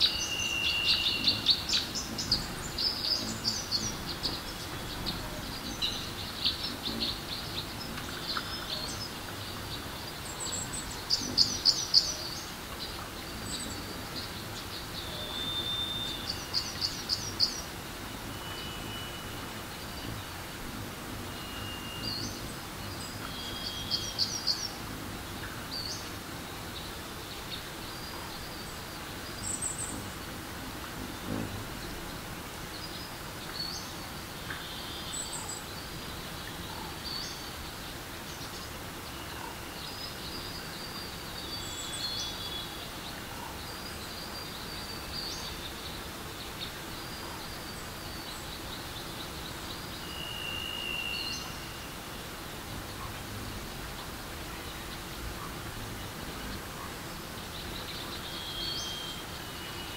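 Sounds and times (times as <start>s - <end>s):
birds chirping and whistling: 0.0s - 25.0s, 48.1s - 52.1s, 57.7s - 59.9s
flowing water: 0.0s - 58.4s.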